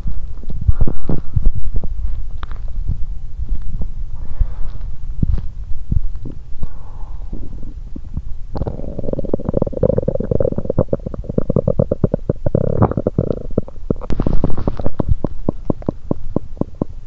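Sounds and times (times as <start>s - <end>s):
stomach groaning: 0.0s - 2.6s, 6.1s - 17.0s
stomach bubbling pops: 7.9s - 17.0s.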